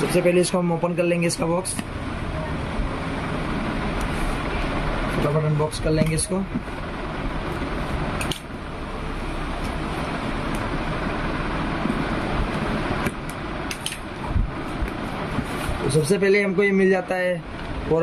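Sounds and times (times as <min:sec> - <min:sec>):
rushing background noise: 0:00.0 - 0:18.0
sharp clicks and rustles: 0:12.5 - 0:15.8.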